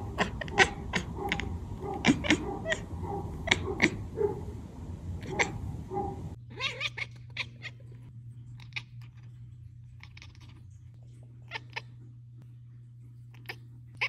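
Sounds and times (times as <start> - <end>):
cat chattering chirps: 0.0 - 4.6, 5.2 - 8.0, 8.6 - 9.3, 9.9 - 10.7, 11.4 - 12.0
low steady hum: 0.0 - 14.0.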